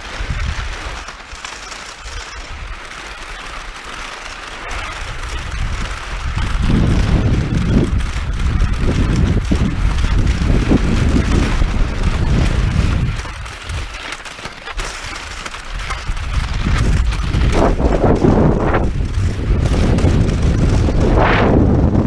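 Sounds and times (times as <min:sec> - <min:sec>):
wind buffeting microphone: 0:00.0 - 0:00.9, 0:04.7 - 0:14.0, 0:14.7 - 0:22.0
wind swishes: 0:04.2 - 0:22.0.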